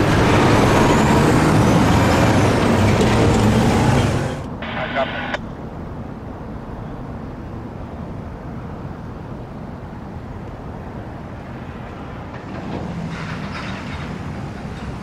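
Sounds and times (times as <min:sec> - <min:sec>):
low rumble of vehicle: 0:00.0 - 0:15.0
light clatter: 0:12.3 - 0:15.0.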